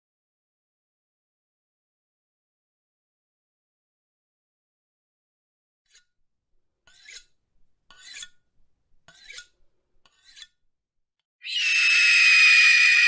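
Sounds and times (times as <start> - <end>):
scissor blades scraping: 5.9 - 6.2, 6.9 - 8.4, 9.1 - 10.6.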